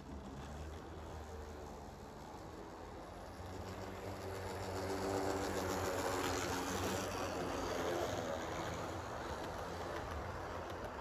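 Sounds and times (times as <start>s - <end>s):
wheels rumbling on rails: 0.1s - 11.0s
model locomotive motor humming: 3.4s - 10.9s.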